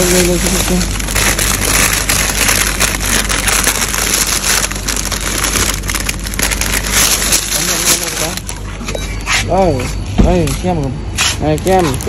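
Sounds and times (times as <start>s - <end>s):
plastic wrappers crinkling: 0.0s - 9.6s, 10.7s - 12.0s.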